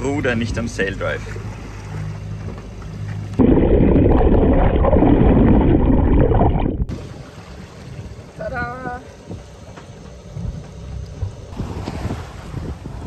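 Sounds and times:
muffled water sloshing and gurgling: 0:00.0 - 0:09.6
low steady hum: 0:00.0 - 0:11.6.

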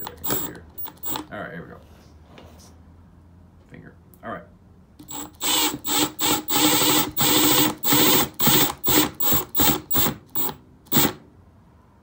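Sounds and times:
impact driver short bursts: 0:00.0 - 0:01.3, 0:05.0 - 0:11.2.

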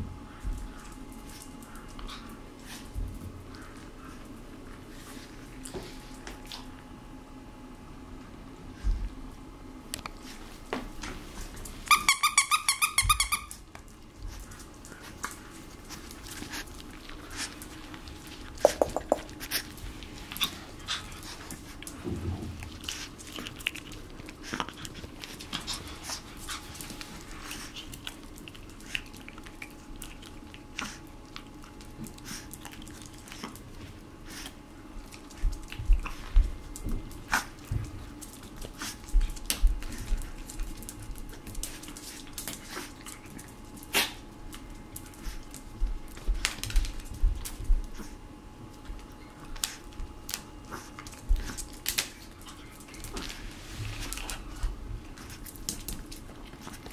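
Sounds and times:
puppy claws clicking on floor: 0:00.3 - 0:04.4, 0:10.0 - 0:48.1, 0:48.7 - 0:56.9
dog toy squeaker: 0:11.9 - 0:13.5
chew stick tapping: 0:18.6 - 0:19.3.

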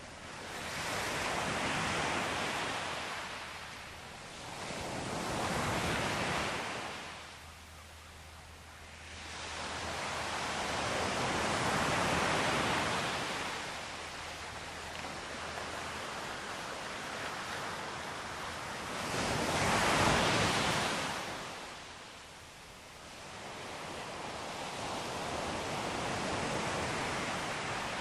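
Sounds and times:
ocean waves breaking on shore: 0:00.0 - 0:08.2, 0:08.8 - 0:28.0.

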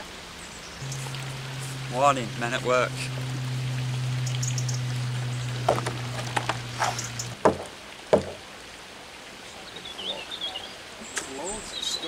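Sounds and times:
low steady hum: 0:00.8 - 0:08.4
knocks and thumps: 0:05.6 - 0:08.4.

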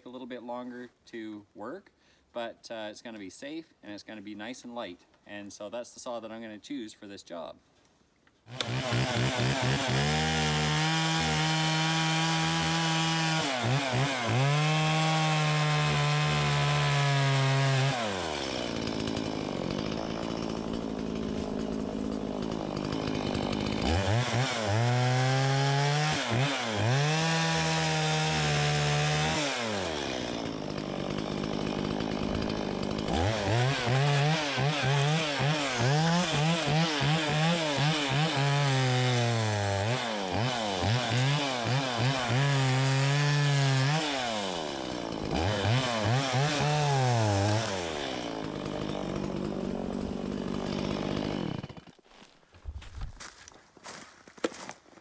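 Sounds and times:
chainsaw revving and cutting log: 0:08.4 - 0:52.3.

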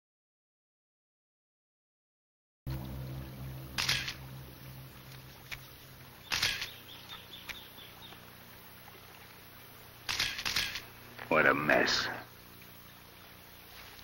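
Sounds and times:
low steady hum: 0:02.7 - 0:14.0
camera shutter click and wind: 0:03.8 - 0:04.2, 0:06.3 - 0:06.8, 0:10.0 - 0:10.9.

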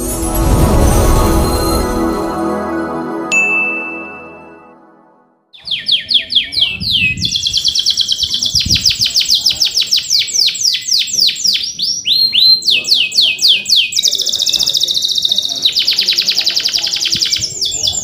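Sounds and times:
short jingle: 0:00.0 - 0:05.4
canary singing: 0:05.6 - 0:18.0.

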